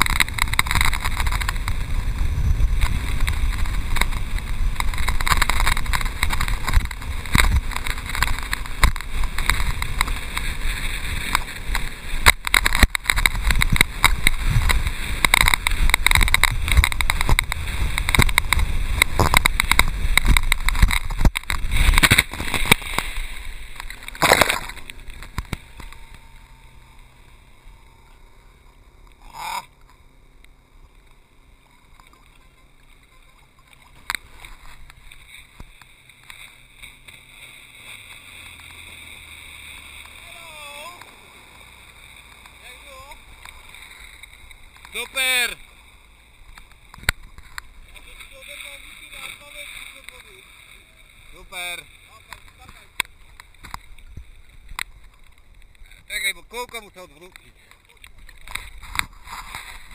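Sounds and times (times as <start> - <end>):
wind on microphone: 0.0 - 26.7
water lapping: 0.0 - 56.1
water rushing and spraying: 0.0 - 59.9.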